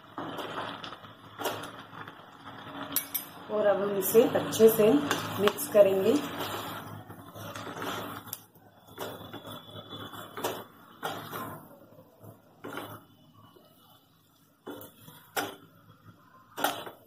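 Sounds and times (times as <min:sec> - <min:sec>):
spatulas scraping a pan: 0:04.6 - 0:11.7.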